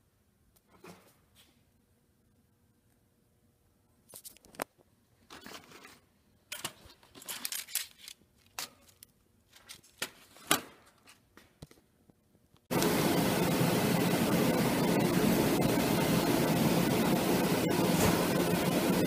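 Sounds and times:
laser cutter blowers rushing: 12.7s - 19.0s.

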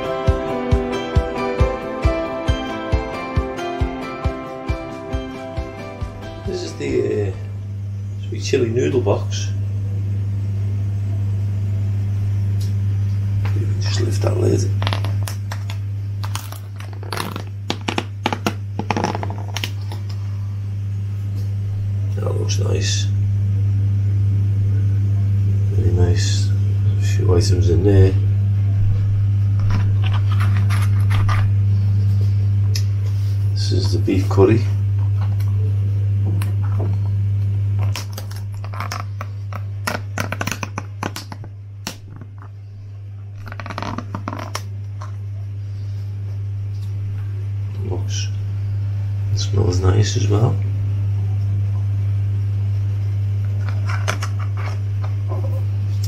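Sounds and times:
steady low hum: 0.0s - 56.0s
plastic lid clicking and crackling: 14.8s - 19.8s, 37.9s - 42.5s.

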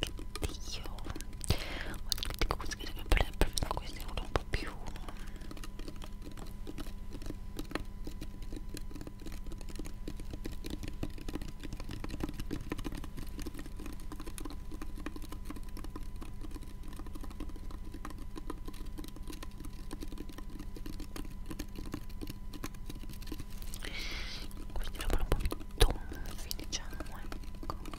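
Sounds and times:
faint microphone whine and hum: 0.0s - 27.9s
fingertip tapping and clicking: 0.0s - 27.9s.

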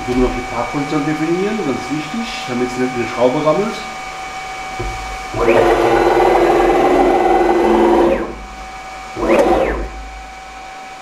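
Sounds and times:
stepper motor whine: 4.8s - 10.9s.

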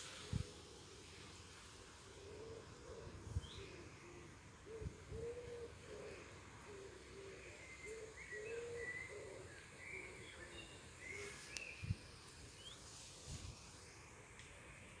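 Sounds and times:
pigeon cooing: 2.1s - 10.4s
small birds chirping: 7.4s - 12.9s.

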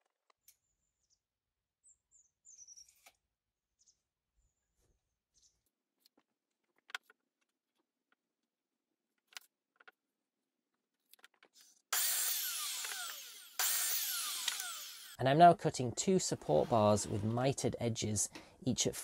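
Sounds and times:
mitre saw cutting timber: 11.9s - 15.2s, 16.2s - 17.7s.

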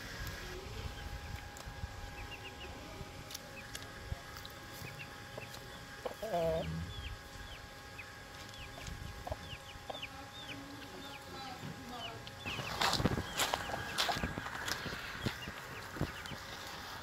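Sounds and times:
chicks peeping: 0.2s - 17.0s
hen clucking: 4.8s - 16.8s.

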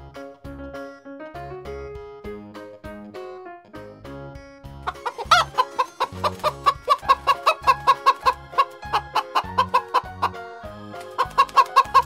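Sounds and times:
children's music with bass beat: 0.0s - 12.0s
chickens clucking: 4.9s - 12.0s.

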